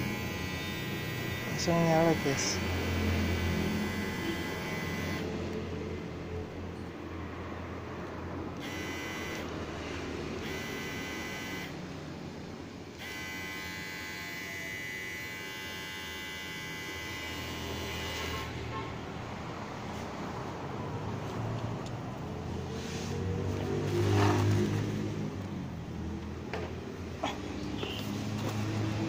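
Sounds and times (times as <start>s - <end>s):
high buzzing whine: 0.0s - 5.3s, 8.6s - 9.5s, 10.4s - 11.8s, 12.9s - 18.7s
hair clipper motor hum: 0.0s - 5.5s, 8.6s - 9.6s, 10.3s - 11.8s, 12.9s - 18.6s.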